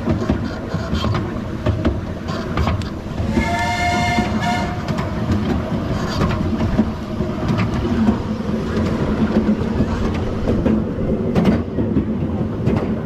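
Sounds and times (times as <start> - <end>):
miniature train rumbling on track: 0.0 - 13.0
train whistle: 3.2 - 4.9.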